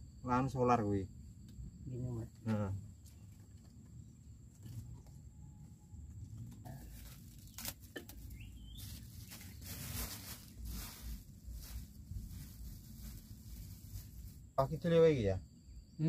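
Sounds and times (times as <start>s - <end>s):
high insect trill: 0.0s - 16.0s
firewood rustling and scraping: 6.4s - 14.5s.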